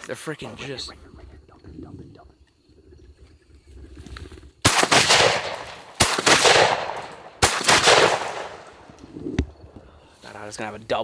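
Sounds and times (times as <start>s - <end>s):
shotgun shots with echo: 4.6s - 8.9s.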